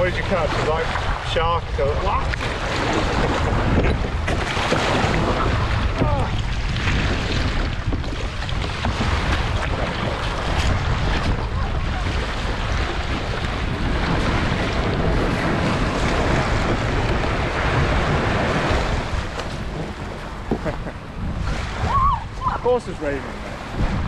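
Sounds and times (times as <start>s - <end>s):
sea waves washing: 0.0s - 24.0s
wind buffeting microphone: 0.0s - 24.0s.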